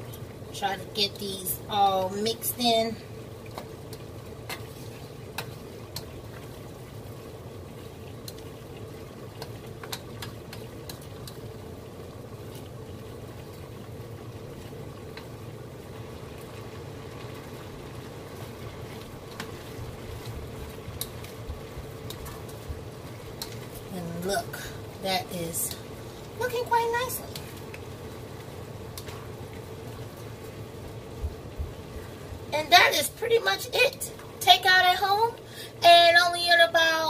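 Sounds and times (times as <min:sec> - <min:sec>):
steady low hum: 0:00.0 - 0:37.0
stir fry sizzling in a skillet: 0:00.0 - 0:37.0
utensil clicking against pan: 0:05.3 - 0:06.1.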